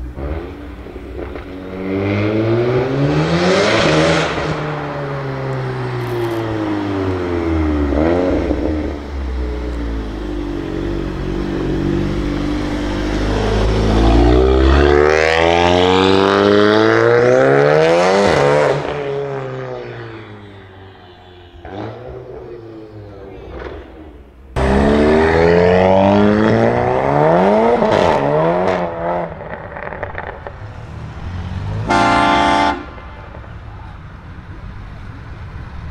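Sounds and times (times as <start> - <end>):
car engine accelerating hard: 0.0 - 35.9.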